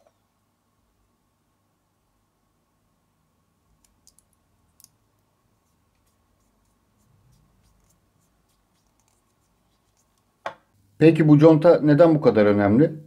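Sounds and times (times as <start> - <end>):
faint small clicks: 3.8 - 5.0.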